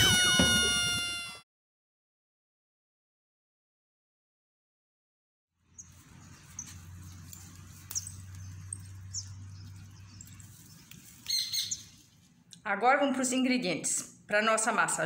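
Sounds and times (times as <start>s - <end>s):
high bird chirps: 5.7s - 12.1s.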